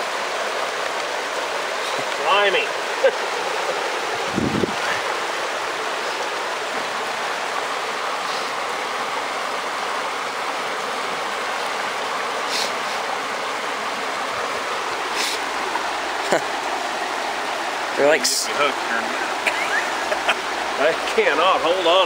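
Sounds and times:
creek water rushing over rocks: 0:00.0 - 0:22.0.

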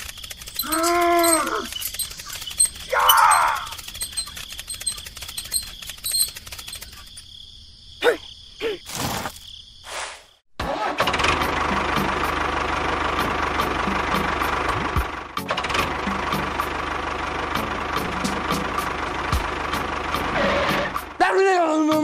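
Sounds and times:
toy tractor engine chugging: 0:00.0 - 0:07.2.

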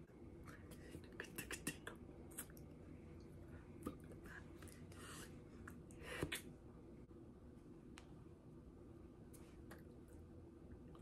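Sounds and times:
low steady hum: 0:00.0 - 0:11.0
soft mouth clicks: 0:00.5 - 0:02.6.

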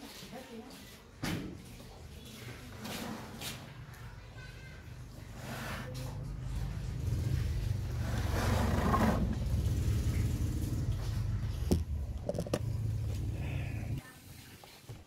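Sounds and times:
rough scraping: 0:05.3 - 0:13.1.

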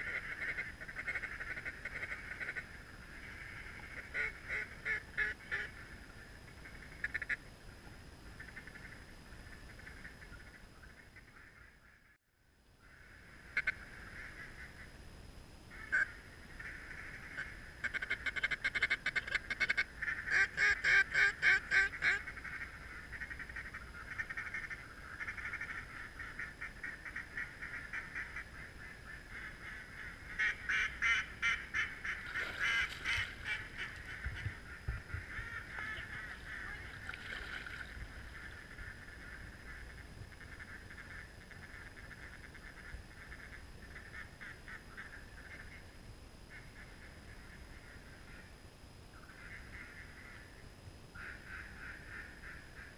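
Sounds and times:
duck quacking: 0:03.9 - 0:05.7, 0:15.7 - 0:28.5, 0:29.1 - 0:39.8.

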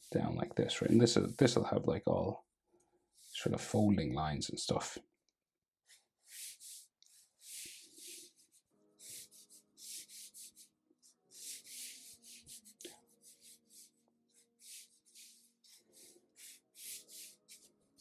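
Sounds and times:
marker scratching on paper: 0:00.0 - 0:01.6, 0:05.9 - 0:18.0.

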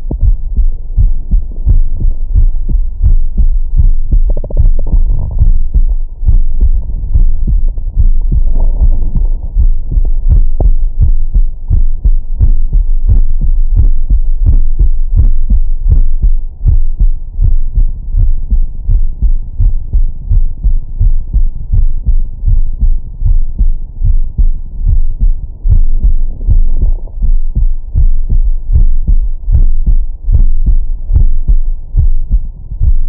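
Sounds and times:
heartbeat through stethoscope: 0:00.0 - 0:33.0.

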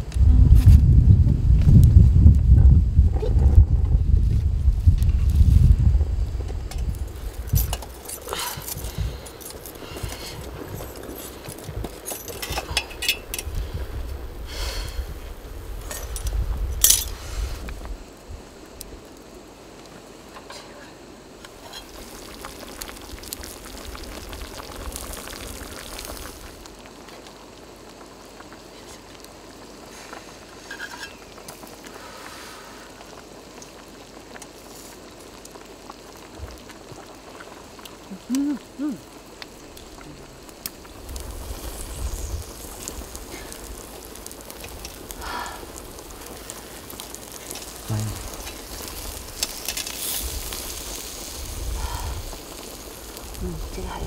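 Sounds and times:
stew bubbling in a pot: 0:00.0 - 0:54.0
meat sizzling on a grill: 0:04.0 - 0:54.0
short vocal sounds: 0:38.1 - 0:39.1, 0:47.8 - 0:48.4.

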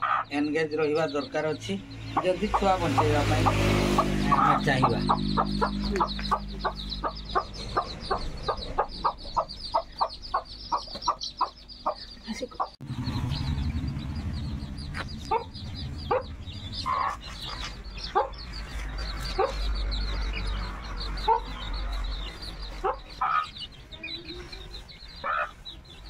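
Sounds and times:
hen clucking: 0:00.0 - 0:12.8, 0:14.6 - 0:26.0
chicks peeping: 0:00.0 - 0:26.0
low rumble: 0:01.7 - 0:11.8, 0:12.8 - 0:22.7.

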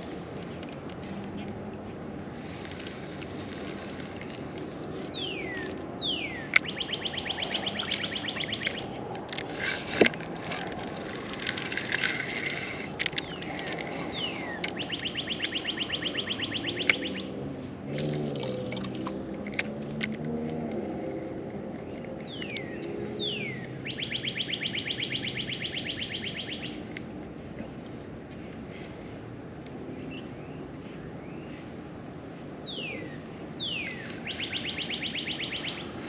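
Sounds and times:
steady low background noise: 0:00.0 - 0:36.0
songbird whistling and trilling: 0:05.1 - 0:09.0, 0:13.2 - 0:17.3, 0:22.2 - 0:26.8, 0:32.6 - 0:36.0
sharp clicks: 0:06.5 - 0:17.2.

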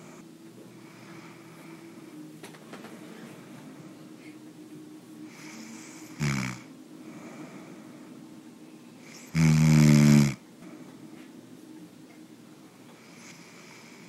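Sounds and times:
faint steady hum: 0:00.0 - 0:14.0
person snoring: 0:05.3 - 0:07.6, 0:09.0 - 0:10.4.

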